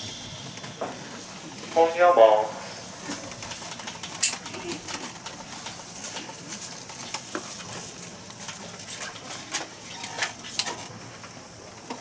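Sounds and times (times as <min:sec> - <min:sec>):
steady hiss: 0:00.0 - 0:03.6.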